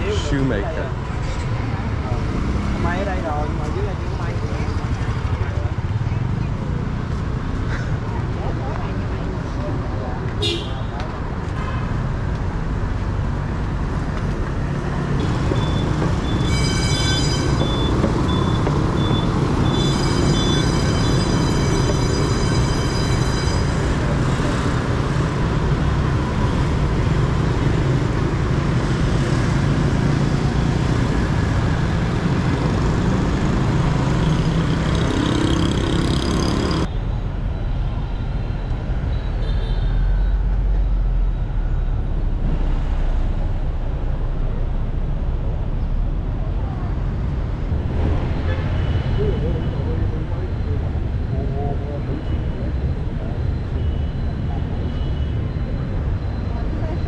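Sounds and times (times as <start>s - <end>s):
scooters and motorbikes passing: 24.0s - 36.9s
dull low traffic rumble: 36.8s - 57.0s.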